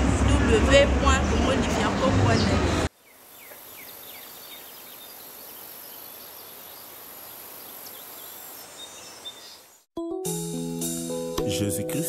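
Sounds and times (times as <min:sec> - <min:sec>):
bird chirps: 0:02.4 - 0:09.9.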